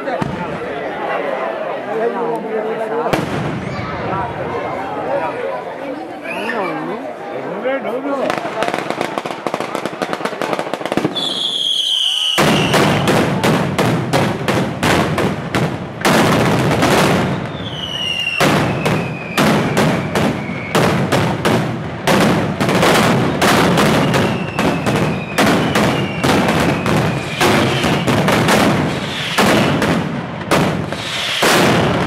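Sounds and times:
loud firecracker bangs: 0:00.1 - 0:00.6, 0:03.1 - 0:04.2, 0:08.2 - 0:32.0
whistling fireworks: 0:08.4 - 0:32.0.

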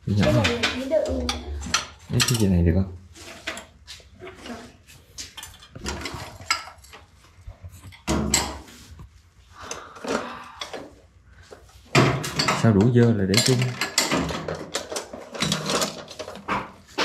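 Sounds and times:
dishes and plates clattering: 0:00.1 - 0:02.6, 0:08.0 - 0:08.7, 0:11.9 - 0:17.0.

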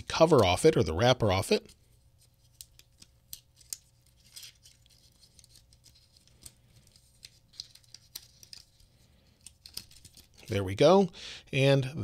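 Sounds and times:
plastic wrapper crinkling: 0:02.4 - 0:10.6.

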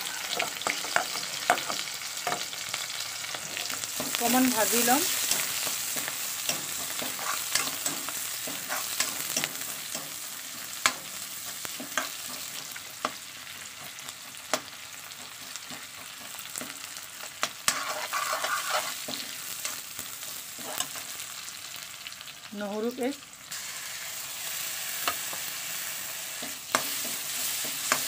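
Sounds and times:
onions sizzling in hot oil: 0:00.0 - 0:28.0
metal spatula scraping pan: 0:06.4 - 0:10.1, 0:17.6 - 0:19.8, 0:20.6 - 0:21.0.

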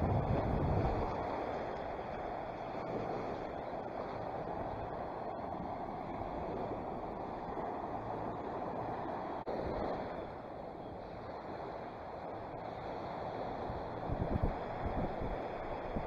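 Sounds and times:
waves washing onto beach: 0:00.0 - 0:16.0
wind on microphone: 0:00.0 - 0:16.0.

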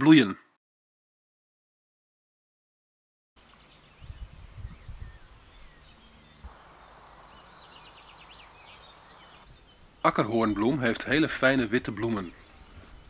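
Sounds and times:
low rumbling on microphone: 0:03.4 - 0:11.1
songbirds chirping: 0:03.4 - 0:13.0
steady hiss: 0:05.2 - 0:11.8.

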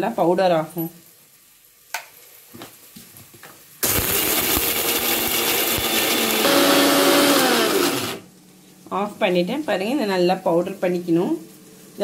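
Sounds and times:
mixer grinder motor grinding: 0:03.8 - 0:08.2.

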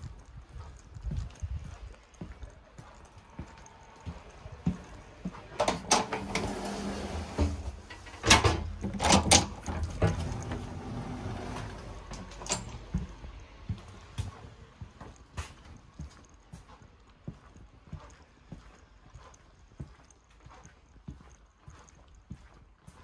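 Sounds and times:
train doors clunking open and shut: 0:05.4 - 0:13.2.

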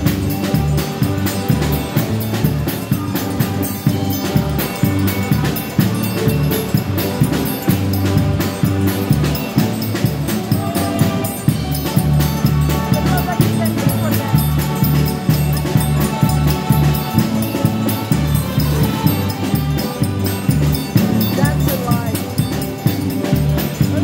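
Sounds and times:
bass line: 0:00.0 - 0:24.0
drum kit beat: 0:00.0 - 0:24.0
horns playing: 0:07.1 - 0:21.3.

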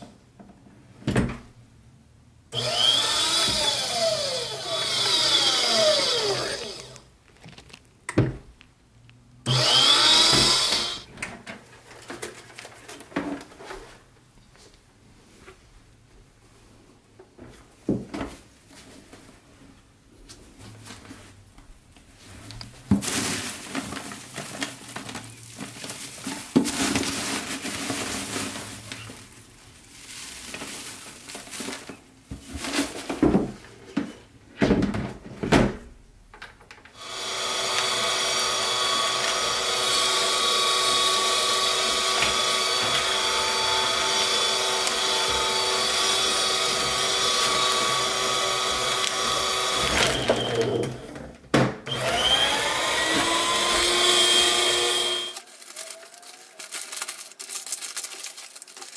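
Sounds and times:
paper shredder motor running: 0:02.6 - 0:07.0, 0:09.5 - 0:11.1, 0:37.0 - 0:51.2, 0:51.9 - 0:55.5
shredded paper rustling: 0:22.1 - 0:33.3, 0:52.0 - 0:58.9.

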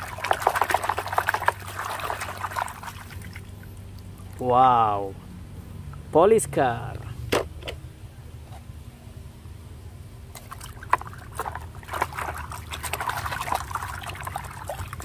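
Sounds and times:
water splashing in a plastic basin: 0:00.0 - 0:04.6, 0:10.3 - 0:15.0.

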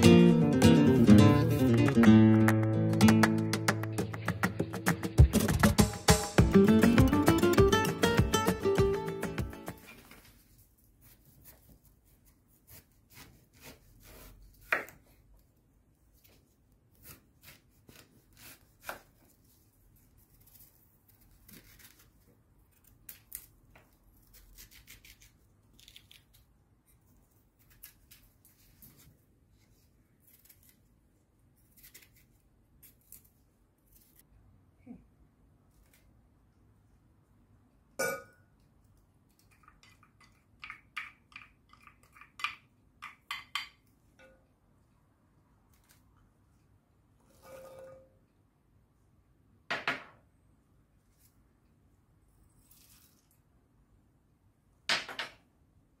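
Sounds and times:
knife slicing on cutting board: 0:12.5 - 0:15.0
glass clink with ring: 0:38.0 - 0:38.4.

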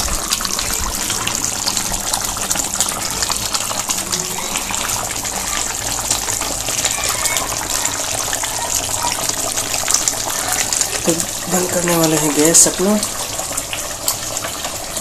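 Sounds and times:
curry boiling in a pan: 0:00.0 - 0:15.0.

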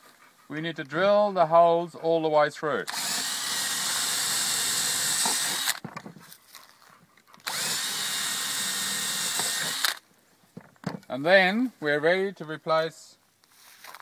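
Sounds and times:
cordless drill boring wood: 0:02.9 - 0:05.9, 0:07.4 - 0:10.0.

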